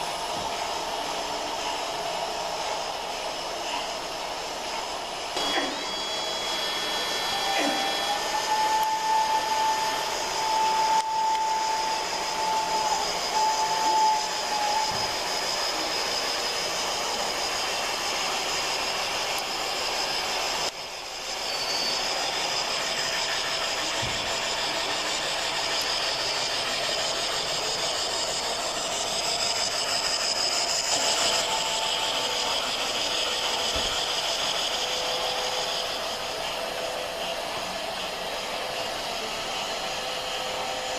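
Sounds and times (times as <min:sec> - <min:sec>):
model steam train hissing: 0:00.0 - 0:40.9
held high tone: 0:05.4 - 0:14.9.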